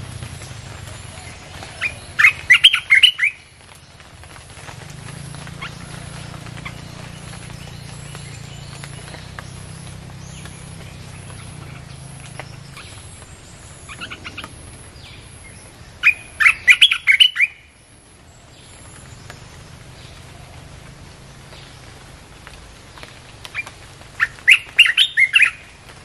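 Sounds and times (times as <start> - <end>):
bulbul song: 0.5 - 3.5, 5.6 - 17.7, 24.2 - 25.7
faint bird chirps: 5.6 - 17.6.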